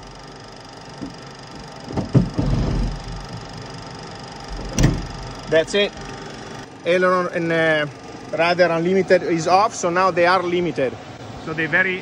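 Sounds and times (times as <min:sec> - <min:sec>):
machinery hum: 0:00.0 - 0:12.0
landing gear clunks and rattles: 0:01.0 - 0:03.6, 0:04.5 - 0:05.6.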